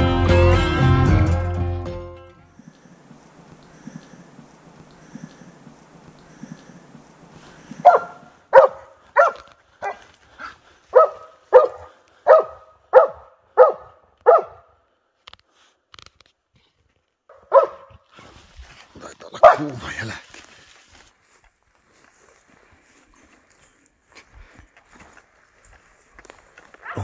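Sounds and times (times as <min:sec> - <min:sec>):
dog barking: 0:07.8 - 0:10.1, 0:10.9 - 0:14.7, 0:17.3 - 0:18.0, 0:19.4 - 0:19.8, 0:26.8 - 0:27.0.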